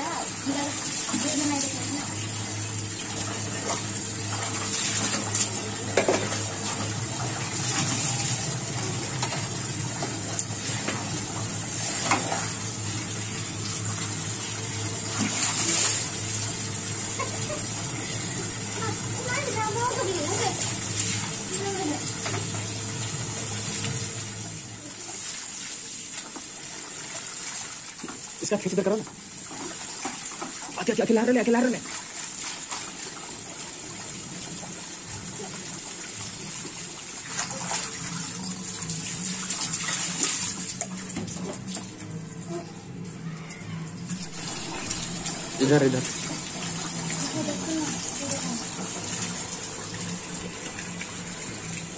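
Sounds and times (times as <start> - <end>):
tap water running into bucket: 0.0 - 51.9.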